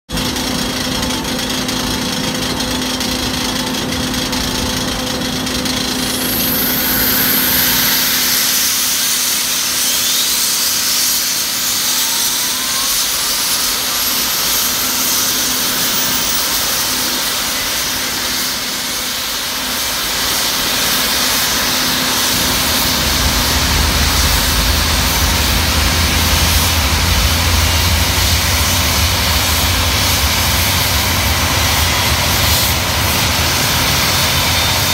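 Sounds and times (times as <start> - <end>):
jet engine whine rising: 1.8 - 34.9
steady hiss and hum: 20.2 - 34.8
deep low rumble: 22.2 - 33.6.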